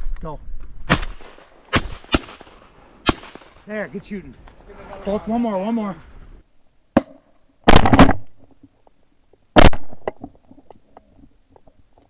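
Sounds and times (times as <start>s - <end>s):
shotgun blasts: 0.8s - 3.8s, 7.0s - 8.3s, 9.6s - 10.0s.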